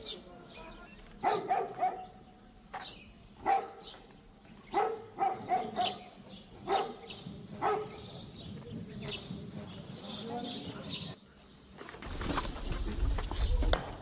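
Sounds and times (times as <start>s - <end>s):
dog barking: 1.2s - 2.2s, 3.4s - 4.0s, 4.7s - 8.2s.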